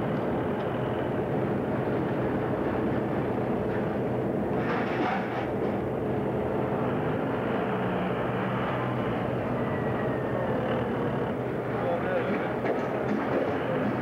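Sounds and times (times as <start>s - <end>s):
low engine drone: 0.0s - 14.0s.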